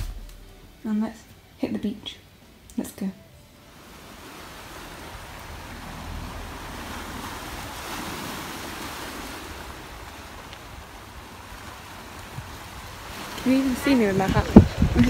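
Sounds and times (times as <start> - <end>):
waves washing onto pebbles: 3.7 - 15.0
wind rumbling on microphone: 3.8 - 15.0.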